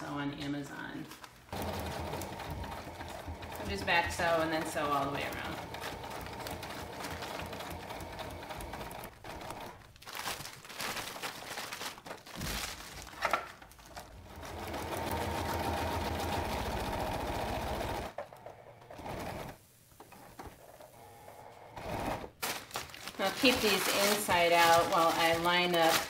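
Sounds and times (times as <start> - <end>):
sewing machine stitching: 1.5 - 9.8, 14.2 - 19.6, 21.0 - 22.3.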